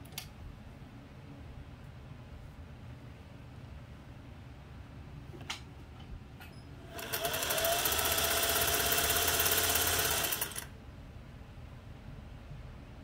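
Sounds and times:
sewing machine running: 6.9s - 10.7s.

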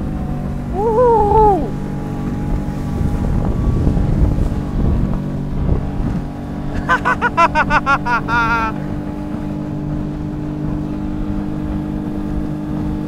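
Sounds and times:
motorboat motor hum: 0.0s - 13.0s
wind buffeting microphone: 0.0s - 13.0s
water rushing past hull: 0.4s - 13.0s
rapid pitched voice sounds: 0.8s - 1.7s.

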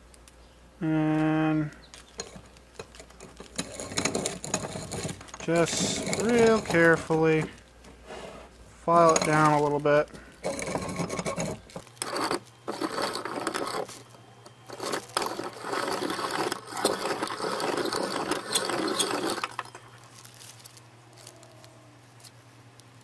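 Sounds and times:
filer grinding piston ring: 3.5s - 7.4s, 8.8s - 20.1s.

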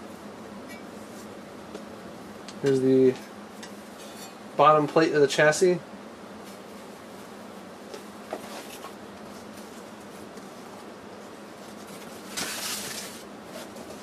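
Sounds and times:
faint steady hum: 0.0s - 14.0s
paper and cardboard rustling: 8.3s - 14.0s.

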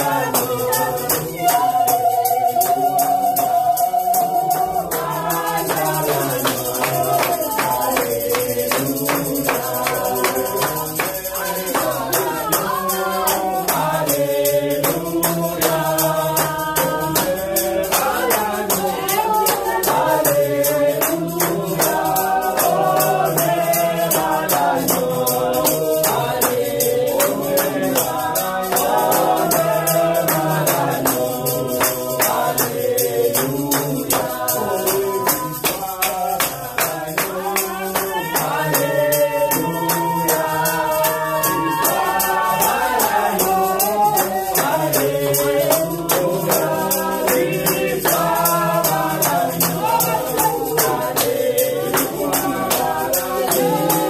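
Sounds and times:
woman singing lead: 0.0s - 8.4s, 9.8s - 14.0s
congregation singing worship song: 0.0s - 54.0s
tambourine shaken: 0.0s - 54.0s.

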